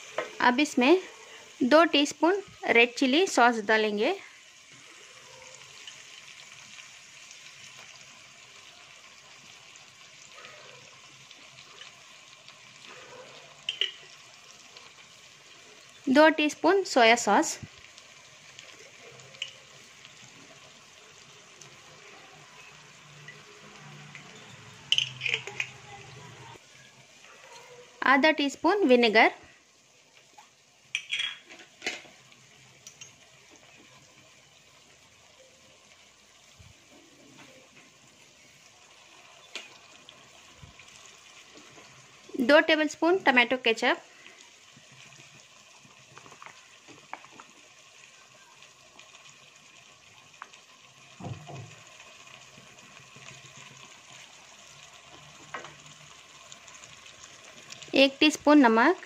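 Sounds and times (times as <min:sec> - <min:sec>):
masala sizzling in a pan: 0:00.0 - 0:59.0
spoon clinking on glass bottle: 0:24.9 - 0:25.7, 0:31.0 - 0:31.5.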